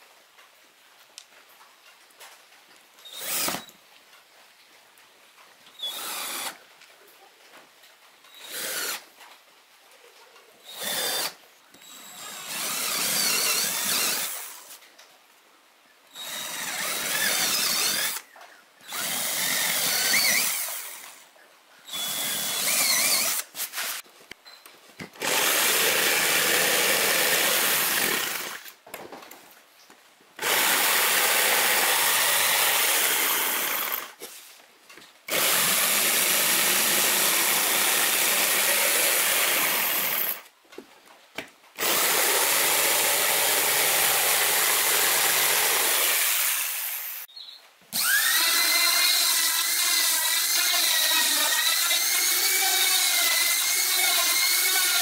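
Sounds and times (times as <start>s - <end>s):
electric drill boring into plywood: 3.1s - 3.7s, 5.8s - 6.6s, 8.4s - 9.0s, 10.7s - 14.5s, 16.2s - 18.2s, 18.9s - 21.2s, 21.9s - 24.0s, 25.2s - 28.7s, 30.4s - 34.2s, 35.3s - 40.4s, 41.8s - 47.2s, 48.0s - 55.0s.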